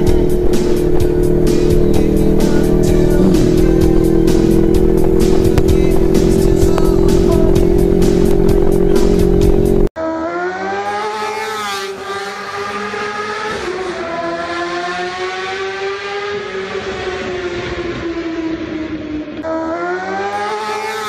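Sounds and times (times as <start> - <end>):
music: 0.0 - 9.9
motorcycle riding: 0.0 - 21.0
racing engine at high revs: 0.0 - 21.0.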